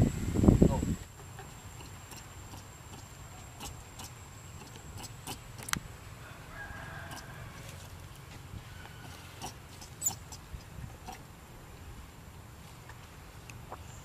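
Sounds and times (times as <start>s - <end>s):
faint animal call: 1.3s - 7.8s, 8.6s - 11.3s.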